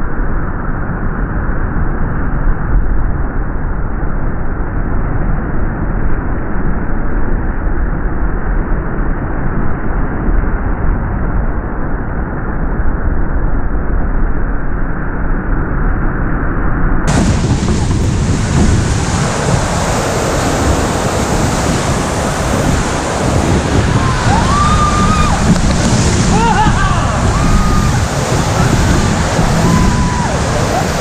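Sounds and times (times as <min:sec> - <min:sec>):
wind buffeting microphone: 0:17.0 - 0:31.0
roaring whitewater rapid: 0:17.1 - 0:31.0
waves crashing over boat: 0:17.1 - 0:31.0.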